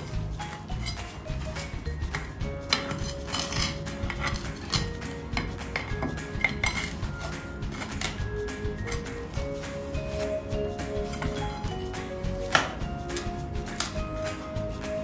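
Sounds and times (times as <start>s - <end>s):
metal tool clinking and scraping: 0.0s - 8.3s
background music: 0.0s - 15.0s.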